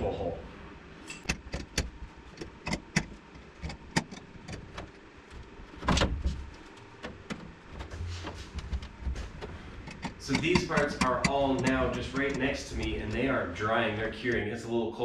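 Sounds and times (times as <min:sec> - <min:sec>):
clamp clicking and knocking: 0:01.1 - 0:04.9, 0:09.8 - 0:13.2.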